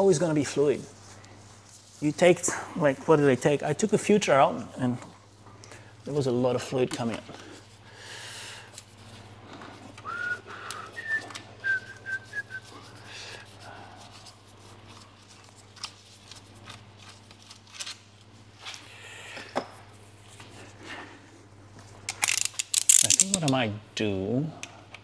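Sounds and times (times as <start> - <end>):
steady low hum: 0.0 - 25.0
person whistling: 10.0 - 13.0.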